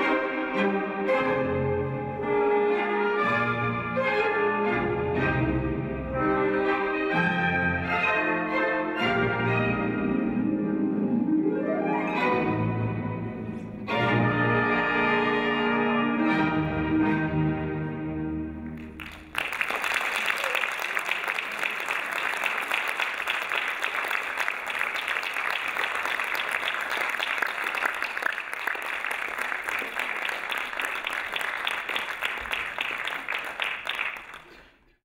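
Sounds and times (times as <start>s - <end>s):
audience applause: 18.8s - 34.8s.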